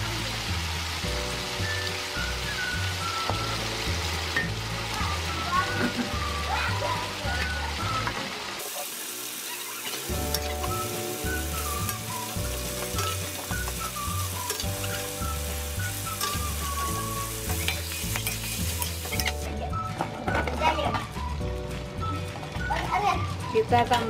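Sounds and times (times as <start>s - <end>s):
food sizzling in hot oil: 0.0s - 23.7s
spatula scraping a wok: 11.6s - 15.4s, 16.0s - 19.5s.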